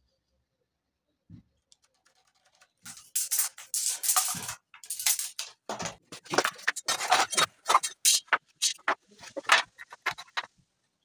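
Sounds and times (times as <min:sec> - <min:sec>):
wooden planks scraping and rattling: 0:02.1 - 0:10.5.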